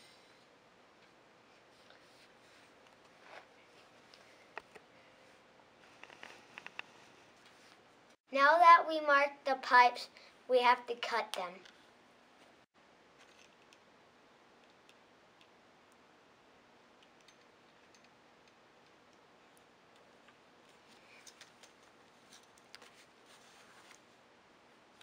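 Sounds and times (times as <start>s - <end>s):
faint clicks and scrapes: 1.0s - 7.8s, 17.0s - 24.2s.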